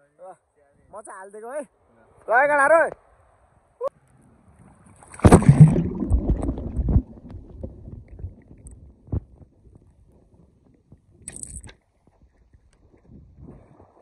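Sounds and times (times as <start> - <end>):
splash into water: 4.9 - 7.6
rush of water: 4.9 - 8.0
churning water: 5.0 - 8.4
muffled underwater swimming: 5.0 - 11.2.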